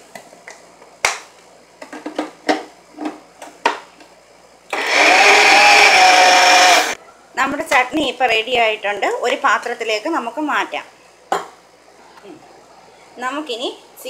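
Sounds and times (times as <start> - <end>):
blender motor grinding: 4.7 - 7.0.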